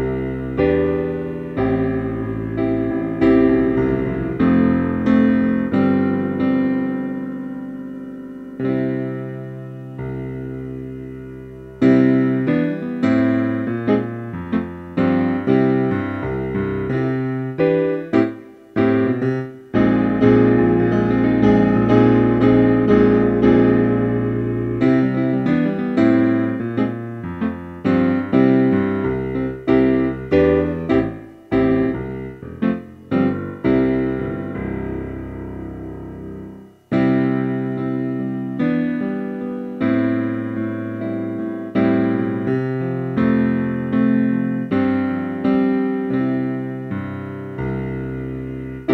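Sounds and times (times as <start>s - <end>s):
piano music: 0.0s - 48.9s.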